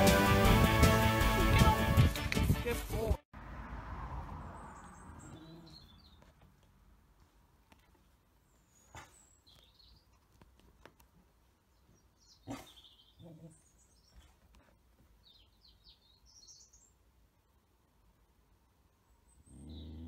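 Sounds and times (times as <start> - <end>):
faint bird chirps: 4.6 - 6.3.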